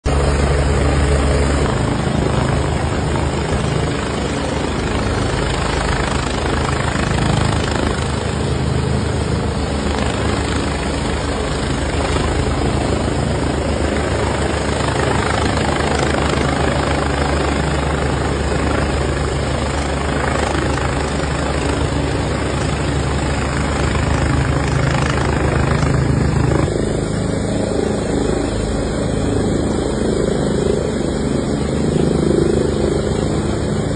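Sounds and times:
helicopter hovering: 0.0 - 33.9.

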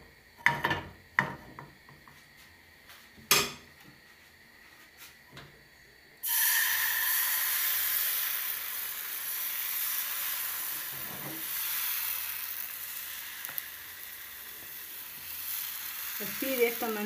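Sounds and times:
batter sizzling in a frying pan: 6.2 - 17.0.

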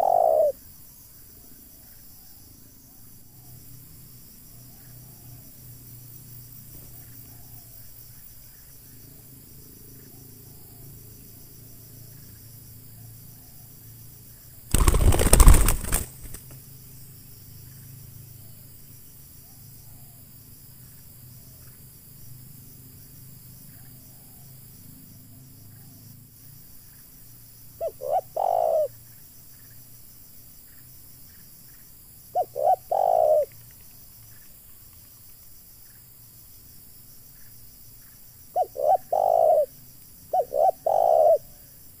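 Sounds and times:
dove cooing: 0.0 - 0.6, 27.8 - 28.9, 32.4 - 33.5, 38.6 - 39.7, 40.3 - 41.6
dove wings clapping: 14.7 - 16.6.

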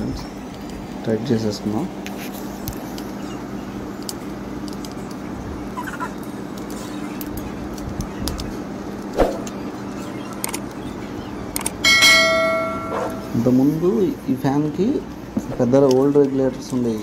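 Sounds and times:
steady low hum: 0.0 - 17.0
ringing metallic clang: 11.8 - 13.4.

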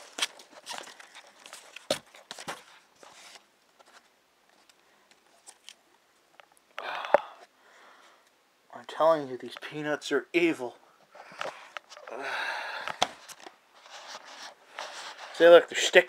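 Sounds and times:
rustling of foam packing peanuts: 0.0 - 3.5.

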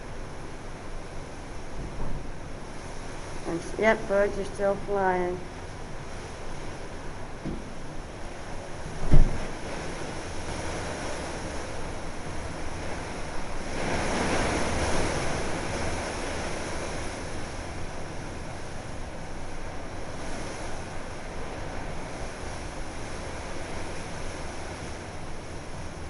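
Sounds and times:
wind gusting through palm fronds: 0.0 - 26.0
wind buffeting the microphone: 5.6 - 26.0.

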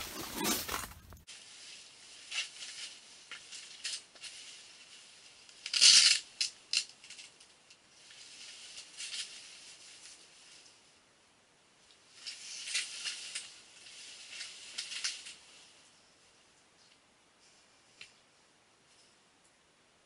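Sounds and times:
clothing and gear rustling: 0.0 - 5.3.

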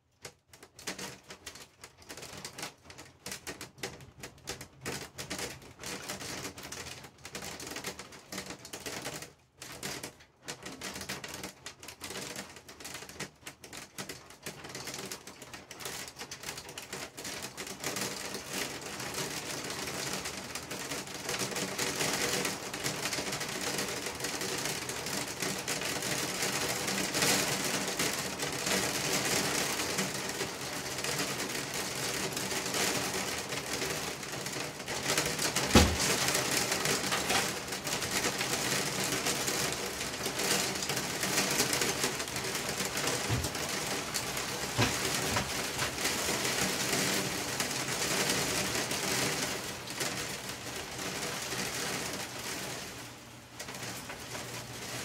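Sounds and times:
knock against tub: 35.7 - 36.1.

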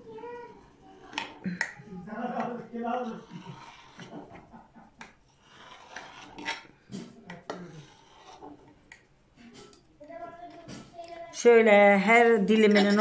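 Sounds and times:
knife scraping on glass dish: 2.3 - 4.4, 5.3 - 8.8.

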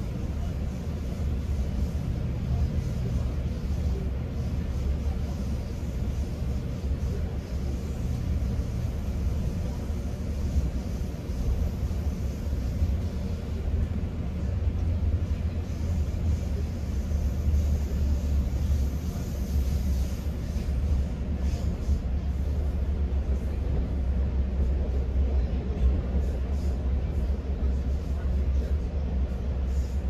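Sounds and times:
train rumble inside coach: 0.0 - 30.0.

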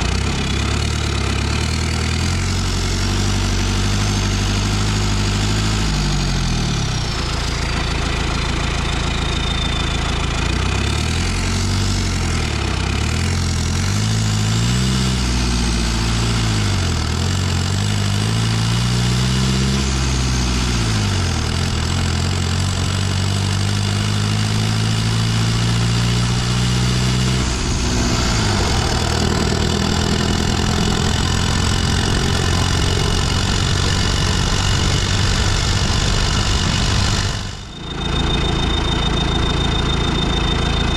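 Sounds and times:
diesel engine under load: 0.0 - 40.9
turbo whistle: 7.2 - 11.2, 24.2 - 40.9.

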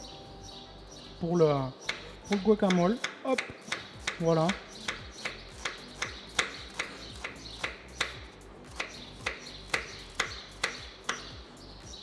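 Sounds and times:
knife chopping on wooden board: 1.8 - 11.3.

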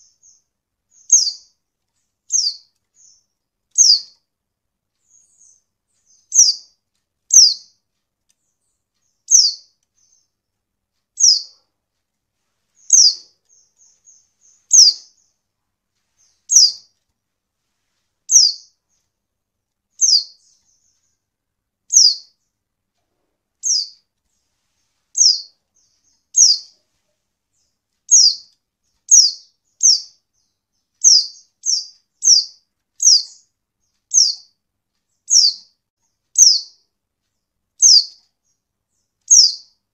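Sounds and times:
bird high downward-sliding chirps: 0.0 - 1.5, 2.3 - 3.2, 3.8 - 4.2, 5.1 - 6.7, 7.3 - 7.7, 9.2 - 10.3, 11.2 - 11.6, 12.8 - 15.3, 16.2 - 16.9, 18.3 - 18.8, 20.0 - 21.1, 21.9 - 22.3, 23.6 - 24.0, 25.2 - 26.8, 28.1 - 33.5, 34.1 - 34.5, 35.3 - 35.7, 36.4 - 36.8, 37.8 - 38.2, 39.3 - 39.8.

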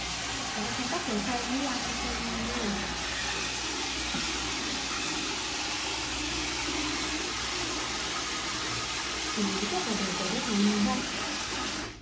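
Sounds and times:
shower spray filling a plastic bucket: 0.0 - 12.0.

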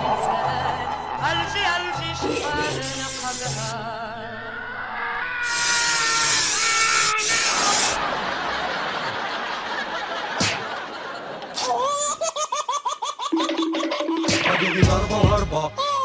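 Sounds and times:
hissing rush: 2.6 - 3.8, 5.4 - 8.0
recorded laughter: 7.7 - 14.2.

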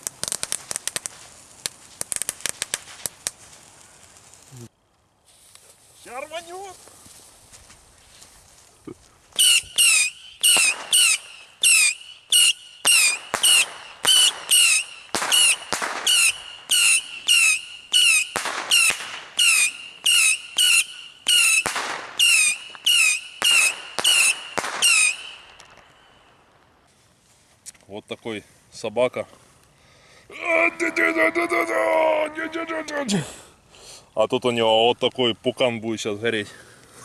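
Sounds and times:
firework whistling bursts: 0.0 - 4.6, 9.3 - 26.5.

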